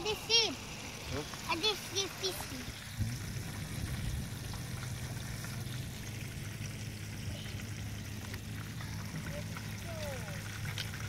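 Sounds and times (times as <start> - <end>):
fish sizzling in hot oil: 0.0 - 11.0
low camp stove rumble: 2.8 - 11.0.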